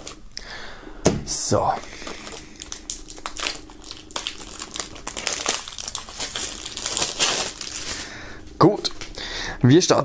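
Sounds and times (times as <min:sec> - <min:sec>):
plastic film crinkling: 0:01.9 - 0:09.2.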